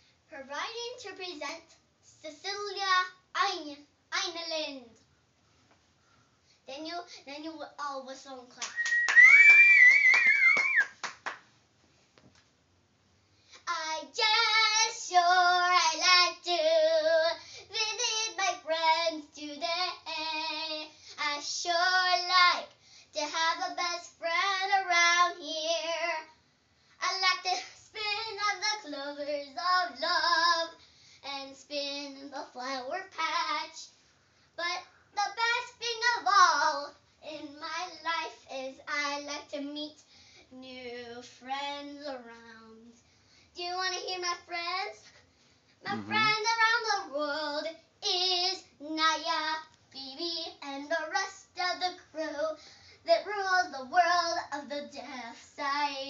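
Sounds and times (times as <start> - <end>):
girl singing unaccompanied: 0.3 - 5.0, 6.6 - 8.9, 13.5 - 26.4, 27.0 - 34.0, 34.6 - 45.2, 45.8 - 56.0
hands clapping: 8.6 - 11.5
person whistling: 8.7 - 10.9.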